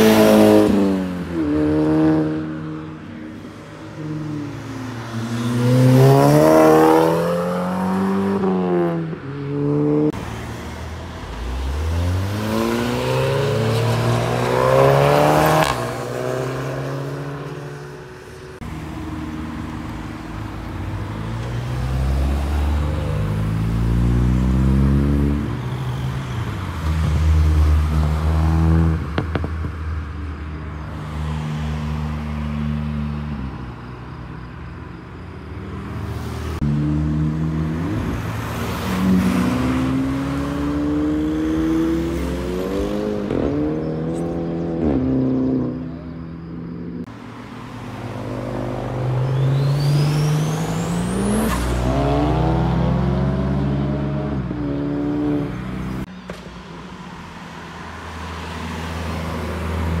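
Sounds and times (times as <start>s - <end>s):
cars accelerating hard: 0.0s - 3.0s, 3.9s - 17.8s, 19.5s - 29.8s, 35.6s - 46.2s, 47.6s - 56.1s.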